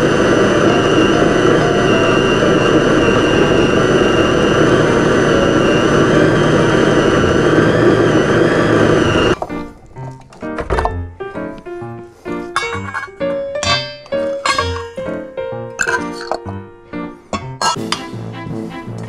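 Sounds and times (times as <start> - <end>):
food processor motor whining: 0.0 - 9.6.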